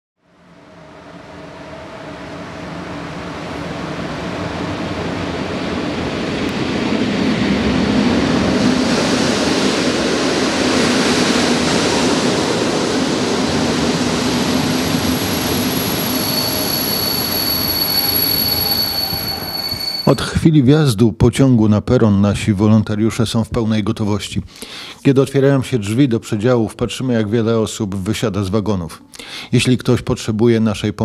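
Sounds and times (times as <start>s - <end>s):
train wheels rumbling: 1.2s - 20.3s
train brakes squealing: 14.5s - 20.4s.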